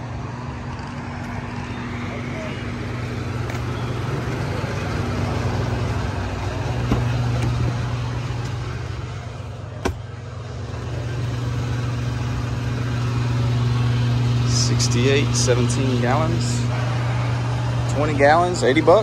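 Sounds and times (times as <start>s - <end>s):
fuel pump humming: 0.0s - 19.0s.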